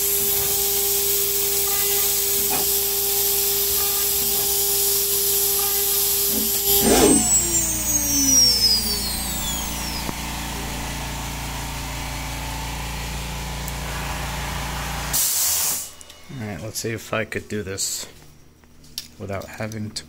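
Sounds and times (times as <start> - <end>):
router spindle cutting metal: 0.0 - 12.0
low hum: 6.2 - 13.1.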